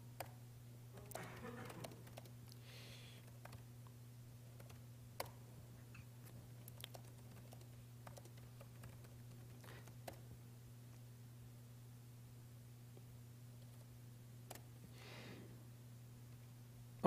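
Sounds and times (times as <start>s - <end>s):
steady low electrical hum: 0.0s - 17.0s
laptop keyboard typing: 1.1s - 2.4s, 3.2s - 3.6s, 4.5s - 5.4s, 6.7s - 10.2s.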